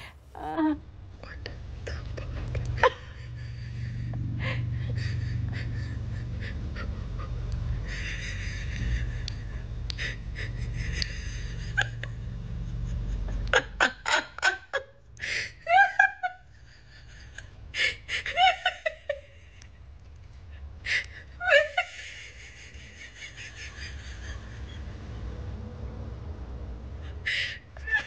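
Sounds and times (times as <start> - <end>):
woman laughing: 2.2 - 12.2, 12.8 - 19.7, 20.9 - 24.9.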